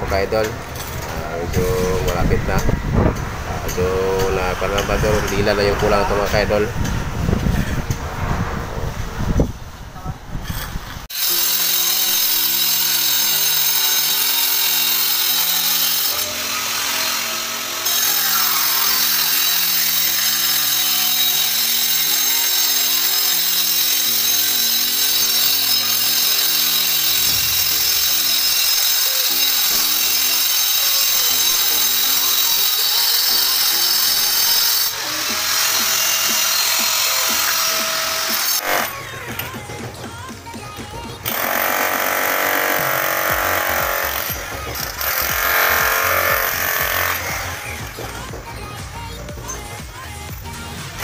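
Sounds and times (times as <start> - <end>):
angle grinder cutting concrete: 3.6 - 6.7, 11.0 - 39.5, 41.2 - 48.3
background music with simple melody: 32.0 - 51.0.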